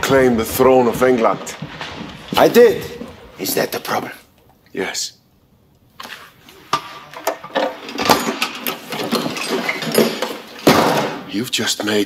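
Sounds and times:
metal casket clicking and rattling: 6.8s - 11.3s.

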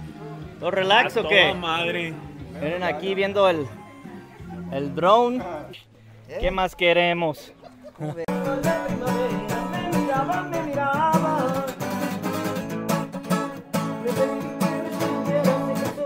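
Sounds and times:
strummed acoustic guitar music: 8.3s - 16.0s.

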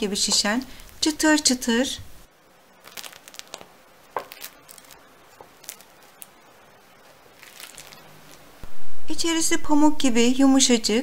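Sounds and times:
bread crust crackling: 2.7s - 8.6s
fingertips tapping bread: 2.8s - 6.4s.

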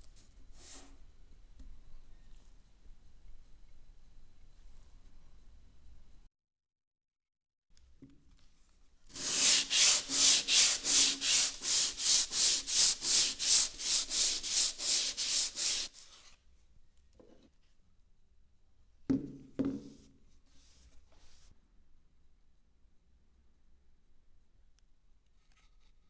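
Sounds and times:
hand sanding wood: 9.1s - 16.0s.

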